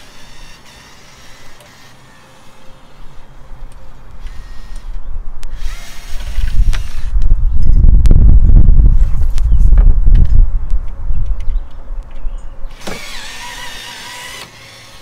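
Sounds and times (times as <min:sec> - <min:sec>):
cordless drill rumbling: 0:00.0 - 0:03.3, 0:04.1 - 0:07.3, 0:12.7 - 0:15.0.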